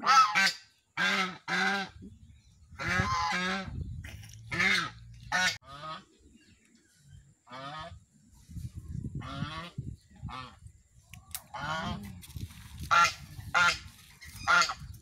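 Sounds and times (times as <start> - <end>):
goose honking: 0.0 - 2.0, 2.8 - 3.7, 4.5 - 6.1, 11.5 - 12.0, 12.9 - 15.0.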